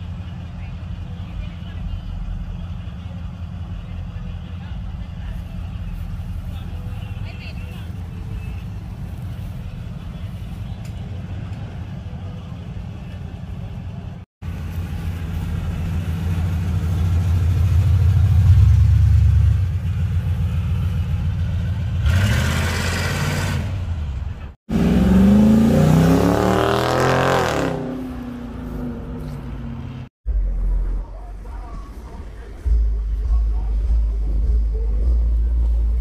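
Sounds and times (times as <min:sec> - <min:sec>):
car engine rumbling: 0:00.0 - 0:36.0
engine revving hard: 0:21.9 - 0:23.9, 0:24.7 - 0:29.1.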